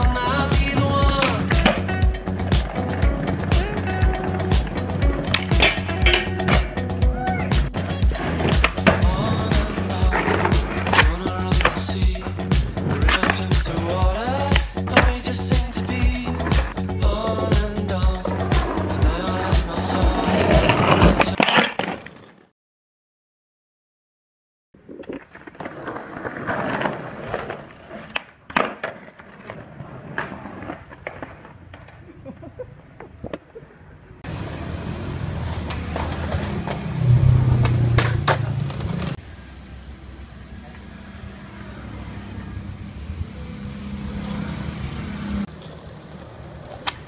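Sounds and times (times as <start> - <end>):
skateboard clacking on ground: 0.0 - 13.8, 19.7 - 22.4, 24.8 - 33.5, 35.4 - 39.2, 45.5 - 47.0
faint street background: 0.0 - 21.6, 24.8 - 47.0
skateboard wheels rolling on concrete: 0.0 - 22.5, 24.8 - 39.3, 40.5 - 47.0
vehicle engine hum: 34.2 - 47.0.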